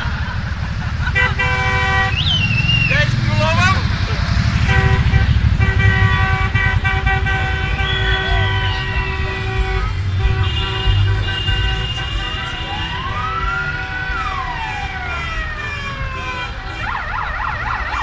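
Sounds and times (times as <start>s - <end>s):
car engines rumbling: 0.0s - 18.0s
car horns blasting: 1.1s - 3.8s, 4.4s - 17.2s
siren-like wails: 7.2s - 9.4s, 12.2s - 18.0s.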